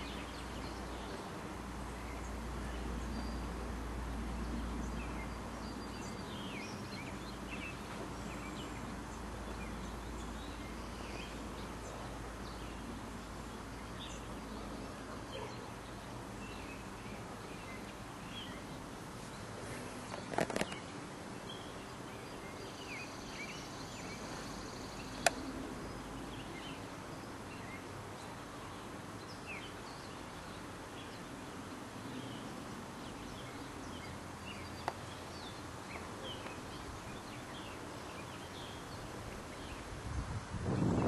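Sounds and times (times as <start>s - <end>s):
low background hiss: 0.0s - 41.0s
small birds chirping: 0.0s - 41.0s
sharp click: 25.2s - 25.4s.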